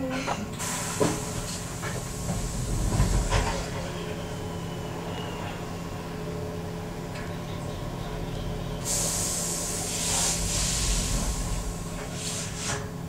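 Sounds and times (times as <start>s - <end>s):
electric train humming: 0.8s - 13.0s
compressed air hiss: 8.8s - 12.8s.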